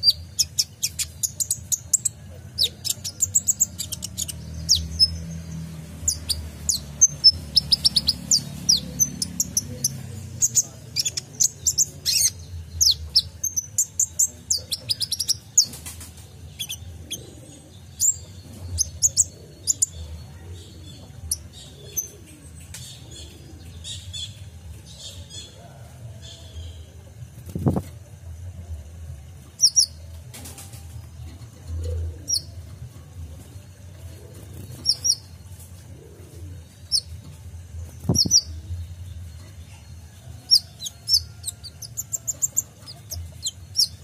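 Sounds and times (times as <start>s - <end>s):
sunbird chirping and twittering: 0.0s - 28.6s, 29.2s - 44.0s
faint low rumble: 0.0s - 44.0s.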